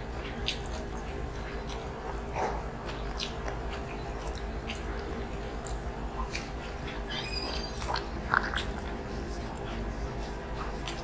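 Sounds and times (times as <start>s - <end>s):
people chewing: 0.0s - 11.0s
steady low hum: 0.0s - 11.0s
wet mouth clicks and smacks: 0.3s - 0.9s, 2.9s - 6.6s.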